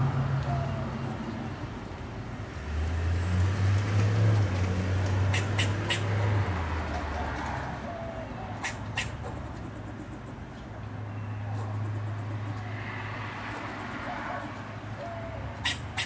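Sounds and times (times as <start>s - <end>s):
squirrel barking: 5.2s - 6.3s, 7.9s - 12.8s, 13.6s - 16.0s.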